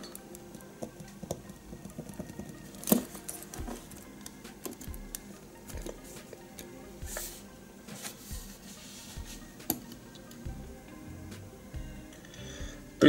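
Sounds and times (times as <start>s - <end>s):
model parts clicking and tapping: 0.0s - 6.0s.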